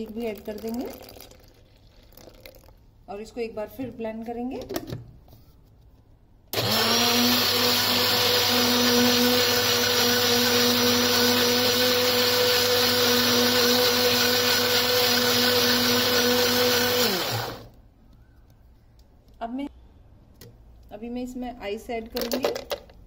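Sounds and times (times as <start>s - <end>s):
electric blender motor: 6.5s - 17.7s.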